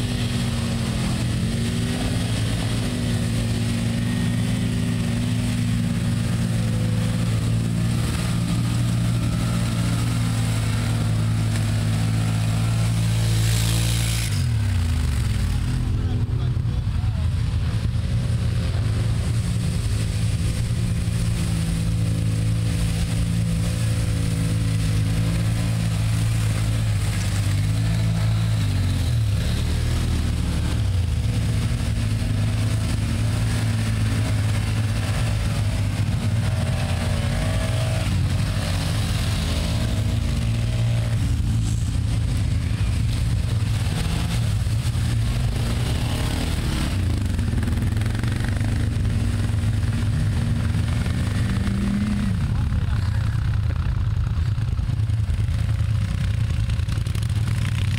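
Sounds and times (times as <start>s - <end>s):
atv engines revving: 0.0s - 57.9s.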